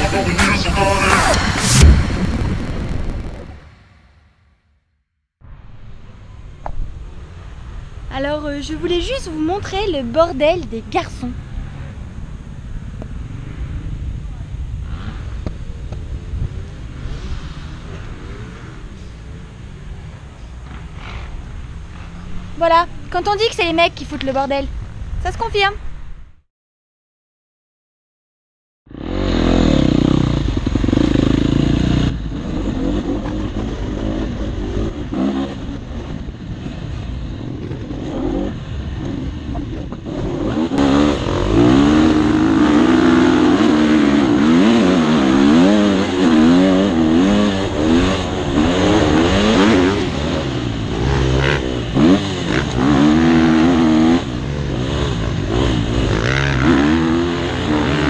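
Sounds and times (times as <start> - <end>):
motocross bike engine revving: 14.8 - 15.5, 28.9 - 58.0.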